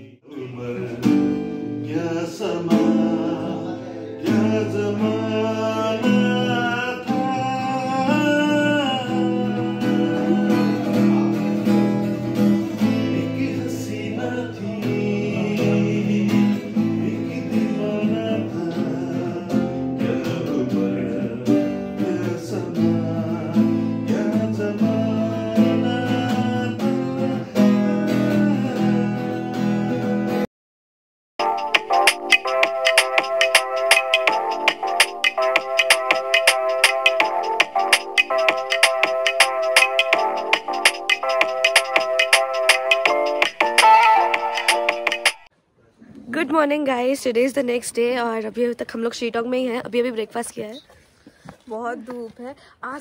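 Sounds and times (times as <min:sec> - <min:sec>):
man singing: 0:00.0 - 0:30.5
acoustic guitar strumming chords: 0:00.5 - 0:30.4, 0:31.4 - 0:45.5.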